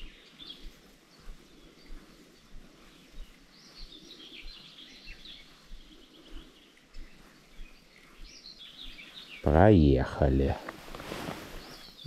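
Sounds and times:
bird chirping: 0.0 - 12.0.

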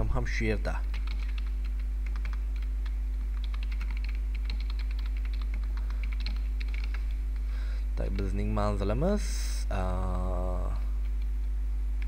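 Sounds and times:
low electrical hum: 0.0 - 12.0
keyboard typing: 0.8 - 7.2.

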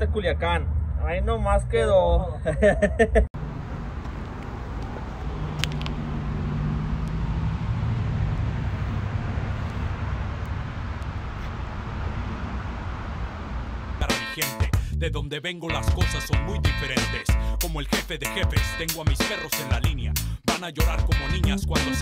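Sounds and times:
traffic rumble: 0.0 - 14.1
vehicle engine hum: 0.0 - 14.1.

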